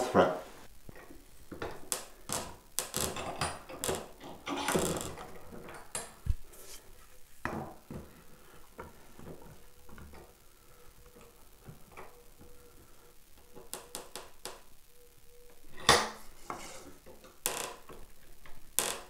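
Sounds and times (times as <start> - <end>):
light wooden knocks and scrapes: 16.4 - 17.2.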